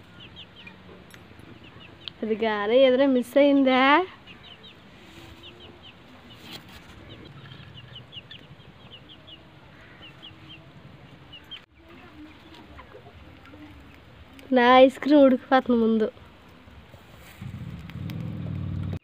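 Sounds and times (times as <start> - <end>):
chicks chirping: 0.0 - 2.2, 3.4 - 14.0.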